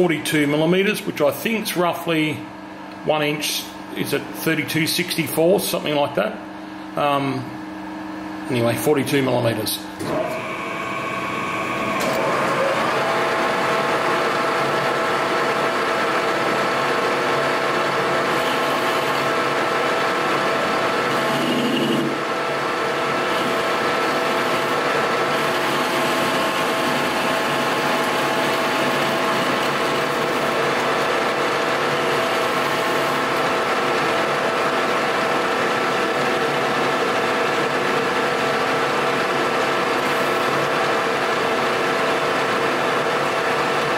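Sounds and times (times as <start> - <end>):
metal lathe whining: 10.0 - 43.9.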